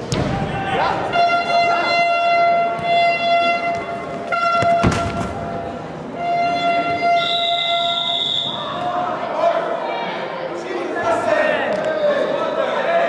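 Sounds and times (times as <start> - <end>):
horn long steady note: 6.0 - 8.5
shrill whistle: 6.3 - 8.8.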